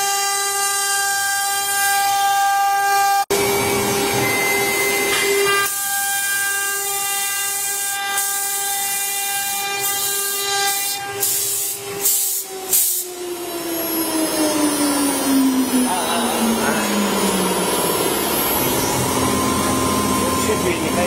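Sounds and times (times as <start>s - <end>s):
hiss of wood cutting: 7.5s - 14.1s
router spindle whining: 11.8s - 21.0s.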